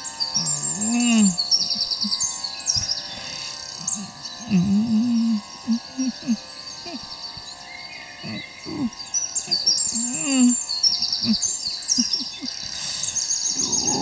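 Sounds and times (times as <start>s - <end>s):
birds chirping: 0.0s - 14.0s
man moaning in pain: 0.4s - 1.4s, 3.8s - 7.0s, 8.2s - 8.9s, 9.5s - 10.6s, 13.6s - 14.0s.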